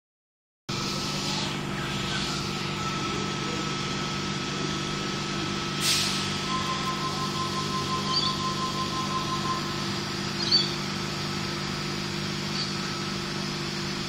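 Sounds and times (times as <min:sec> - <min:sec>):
electric train hum: 0:00.7 - 0:14.0
high whine: 0:00.7 - 0:14.0
air hiss: 0:05.8 - 0:06.5.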